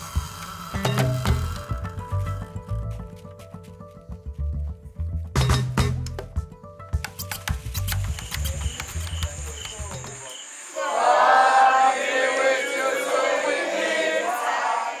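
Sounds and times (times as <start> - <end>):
music with drum beat: 0.0 - 10.3
crowd singing or chanting: 10.7 - 15.0.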